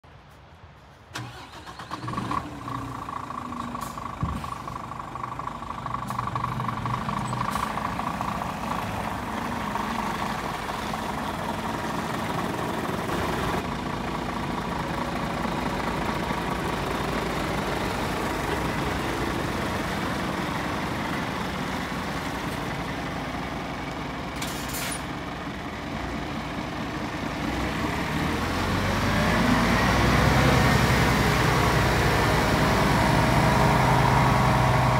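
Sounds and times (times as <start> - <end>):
truck diesel engine idling: 1.2 - 24.4, 25.0 - 29.2.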